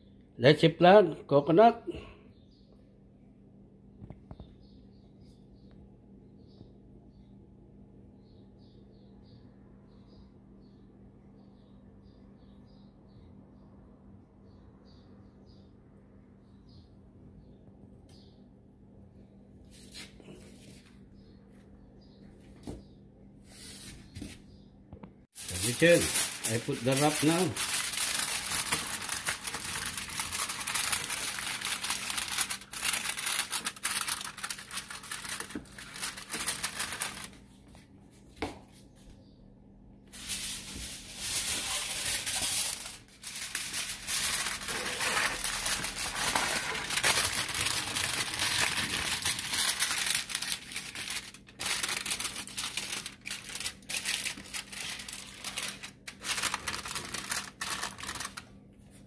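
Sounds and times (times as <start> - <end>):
aluminium foil crinkling: 25.4 - 37.4, 40.2 - 59.0.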